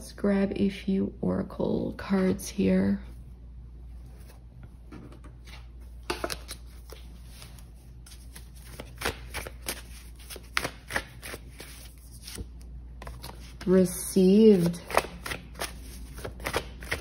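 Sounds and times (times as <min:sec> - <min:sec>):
cards being shuffled: 0:05.3 - 0:13.8, 0:14.4 - 0:17.0.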